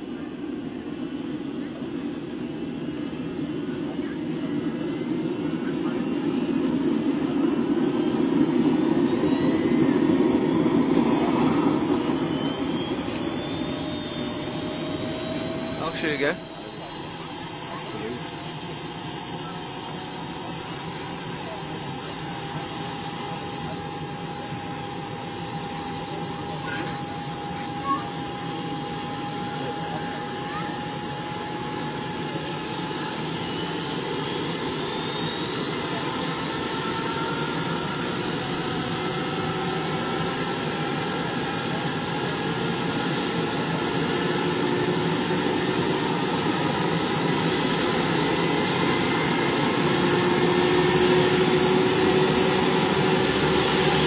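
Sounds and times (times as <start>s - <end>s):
model helicopter turbine whine: 0.0s - 54.0s.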